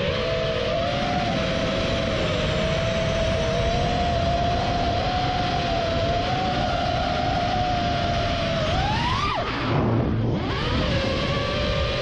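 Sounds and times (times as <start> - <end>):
drone motors whining: 0.0 - 12.0
wind rush on microphone: 0.0 - 12.0.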